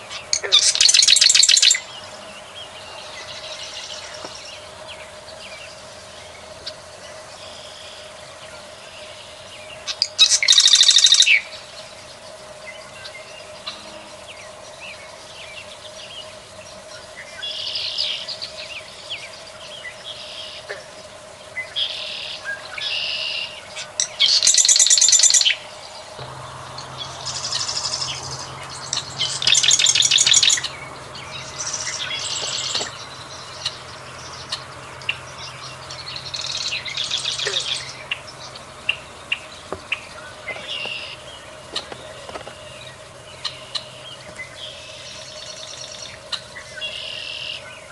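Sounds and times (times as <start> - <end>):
bird singing buzzy trilled phrases: 0.0 - 47.9
faint steady drone: 0.0 - 47.9
low hum: 25.2 - 47.9.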